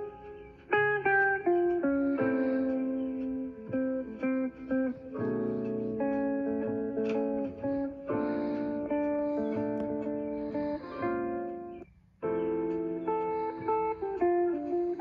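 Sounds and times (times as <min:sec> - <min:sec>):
plucked guitar alarm melody: 0:00.0 - 0:15.0.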